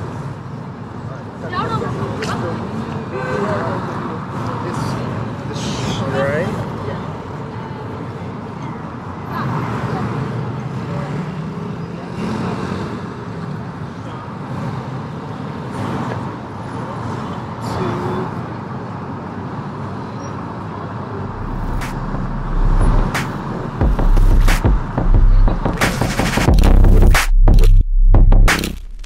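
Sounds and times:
road traffic: 0.0s - 29.0s
music with deep bass: 21.3s - 29.0s.

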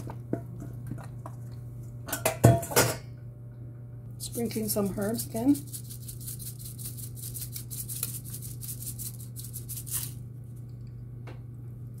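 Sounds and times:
low steady hum: 0.0s - 12.0s
spice jar rattling: 5.6s - 10.2s.

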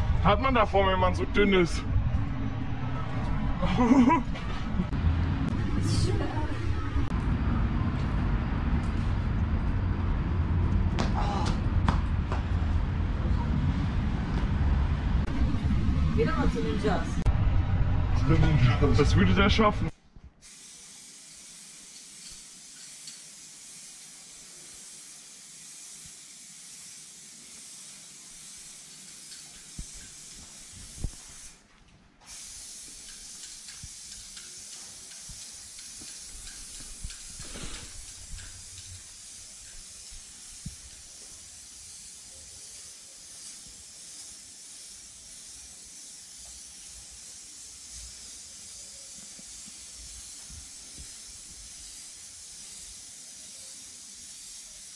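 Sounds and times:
spray-paint can hissing: 20.4s - 31.6s, 32.2s - 54.9s.

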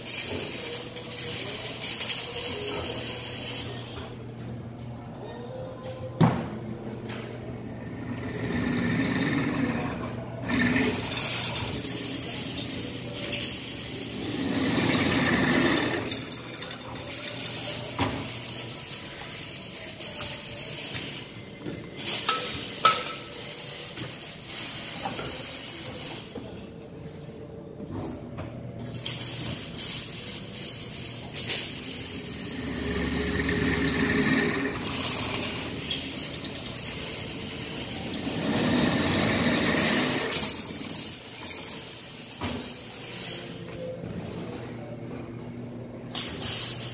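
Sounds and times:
drill press motor running: 14.2s - 16.1s, 32.4s - 35.8s, 38.2s - 40.3s.

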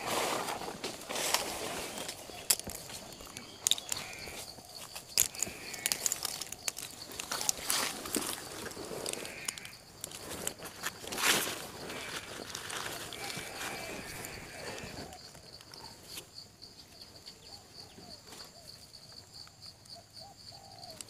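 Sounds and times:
leaves and twigs crackling: 0.0s - 16.2s
twigs snapping: 0.8s - 14.9s.

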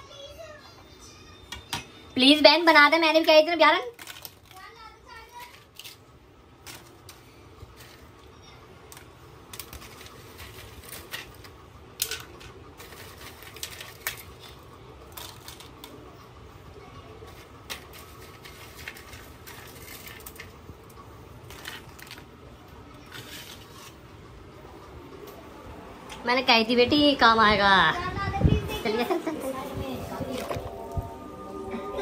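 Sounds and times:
low steady hum: 0.0s - 32.0s
kitchen items clicking and knocking: 8.8s - 16.0s, 17.1s - 24.0s.

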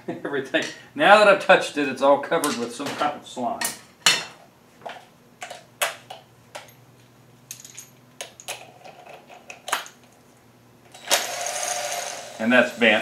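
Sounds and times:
metal parts clinking: 7.5s - 10.2s.

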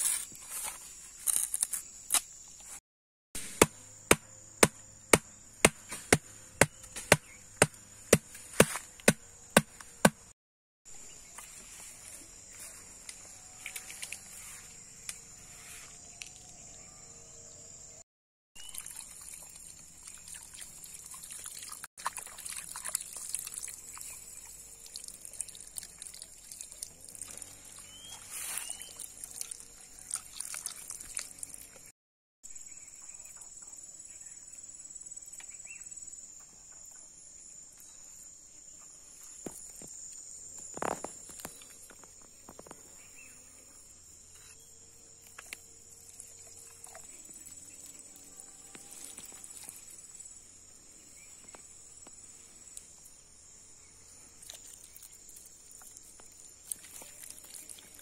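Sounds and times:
sharp wooden knocks: 3.4s - 10.3s
high insect drone: 11.0s - 18.0s, 32.5s - 58.0s
water splashing and dripping: 18.6s - 27.8s, 28.8s - 31.8s, 54.4s - 58.0s.

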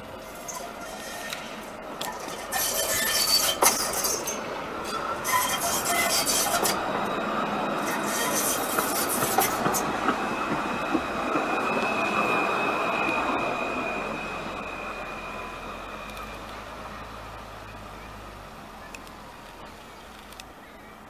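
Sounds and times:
tram high whine: 0.0s - 21.0s
tram passing on rails: 0.0s - 21.0s.

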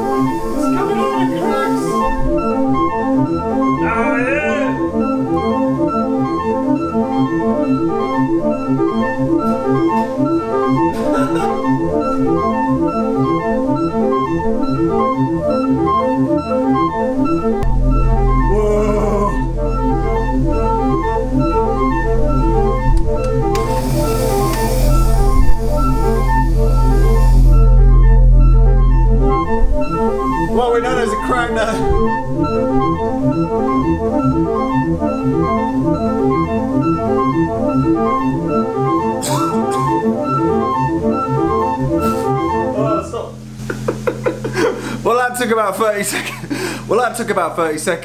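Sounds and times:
organ repeating run of notes: 0.0s - 48.0s
deep held organ bass note: 17.3s - 45.1s.

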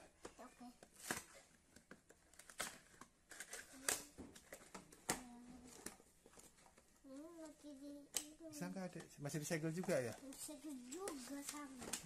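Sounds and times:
toy box taps and clacks: 8.0s - 12.0s.

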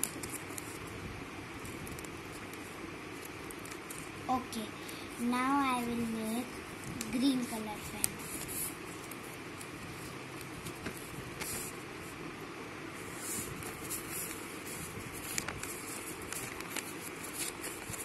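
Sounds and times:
paper crackles: 0.0s - 0.9s, 1.5s - 12.2s, 13.0s - 18.0s
paper rustling and crinkling: 0.0s - 0.9s, 1.5s - 4.2s, 6.8s - 12.2s, 13.0s - 18.0s.

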